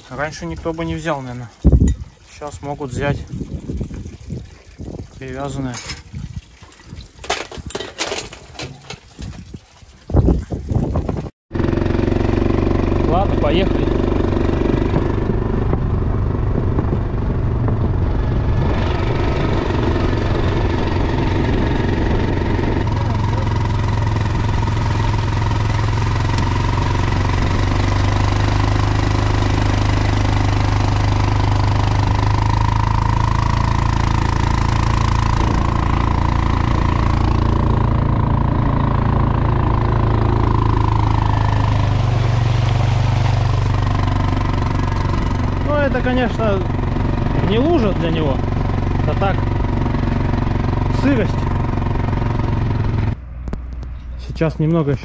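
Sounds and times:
quad bike engine running: 0:11.5 - 0:54.2.

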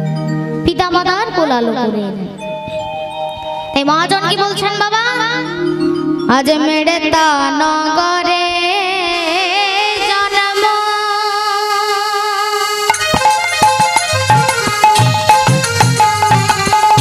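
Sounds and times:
sharp strikes and drum beats: 0:12.9 - 0:17.0.

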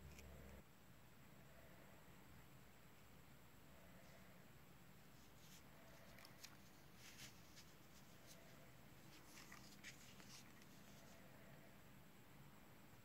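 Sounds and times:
soft scratchy rustles: 0:05.0 - 0:11.4.

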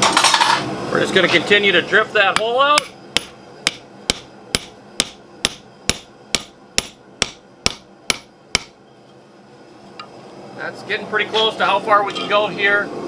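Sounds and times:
hammer striking steel drift: 0:02.4 - 0:08.8.

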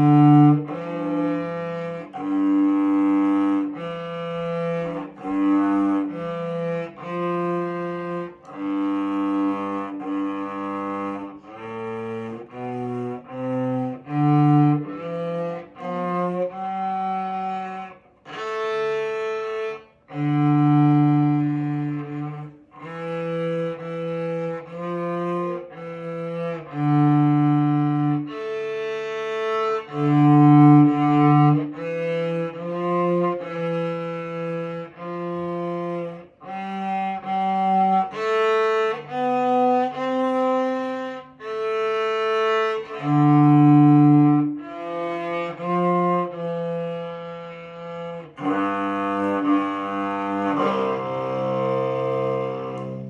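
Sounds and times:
bowed cello melody: 0:00.0 - 0:53.0.

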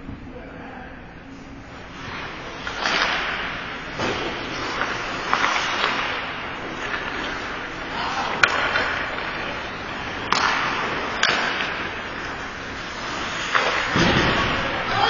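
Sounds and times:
stick hitting puck: 0:02.6 - 0:15.0.

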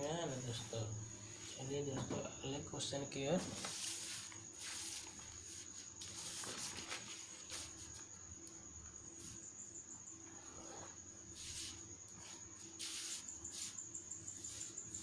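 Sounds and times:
paper rustling: 0:03.4 - 0:08.0.

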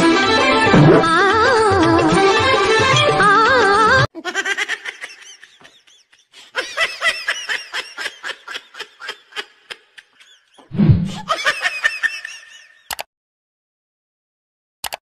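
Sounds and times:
person laughing rapidly: 0:04.1 - 0:12.9.

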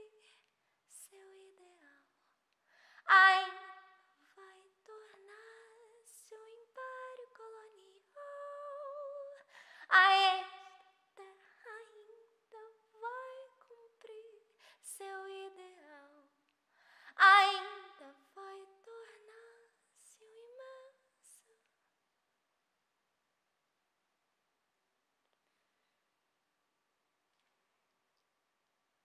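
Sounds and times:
woman singing unaccompanied: 0:03.1 - 0:16.3, 0:17.1 - 0:21.6.

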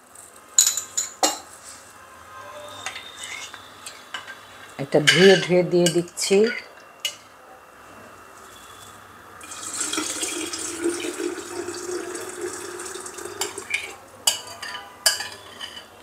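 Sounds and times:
liquid pouring into glass jug: 0:09.4 - 0:14.0.

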